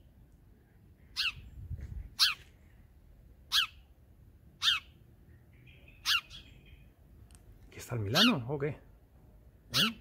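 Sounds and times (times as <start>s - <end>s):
sparrow chirps: 1.0s - 2.8s, 3.4s - 7.2s, 8.1s - 8.5s, 9.6s - 10.0s.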